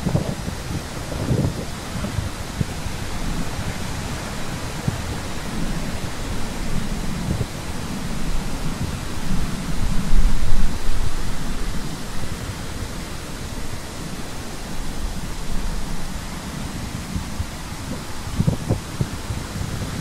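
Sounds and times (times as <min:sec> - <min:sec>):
steady rushing noise: 0:00.0 - 0:20.0.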